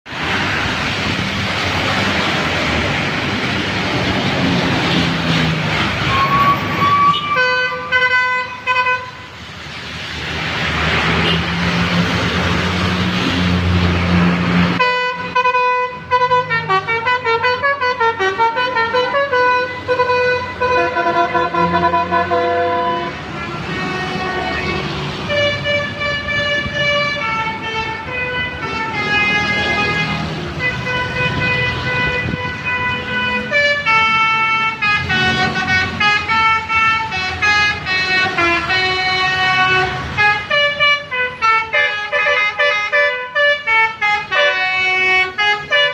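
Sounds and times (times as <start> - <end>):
traffic hissing on wet road: 0.1 - 45.9
multi-tone air horn melodies: 6.0 - 9.3, 14.7 - 45.9.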